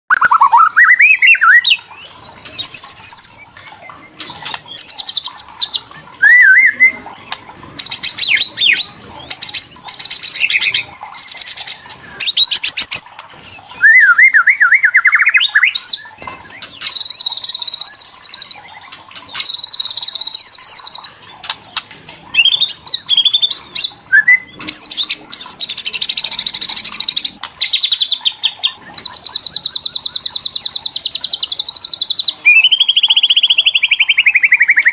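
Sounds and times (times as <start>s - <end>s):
bird whistled warbling notes: 0.1s - 3.5s, 6.2s - 7.1s, 13.7s - 18.8s, 22.1s - 27.1s, 29.0s - 34.9s.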